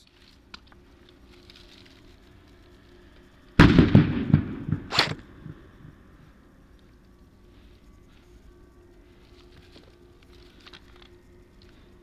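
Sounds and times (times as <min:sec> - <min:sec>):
faint outdoor background: 0:00.0 - 0:12.0
sharp crack: 0:03.6 - 0:05.5
loud bangs and pops: 0:03.6 - 0:05.6.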